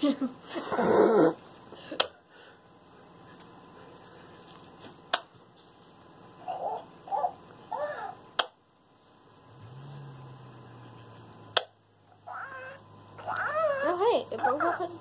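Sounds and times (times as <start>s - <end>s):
low steady hum: 0.0s - 15.0s
electronic toy chirps and coos: 6.4s - 8.2s, 12.1s - 14.9s.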